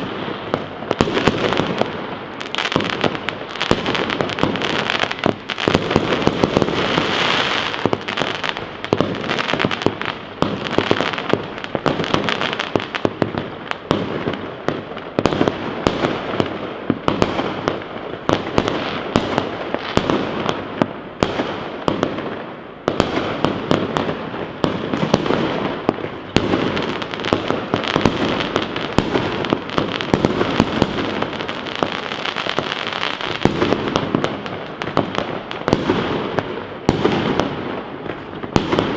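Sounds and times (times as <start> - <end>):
fireworks bangs and crackling: 0.0 - 38.9.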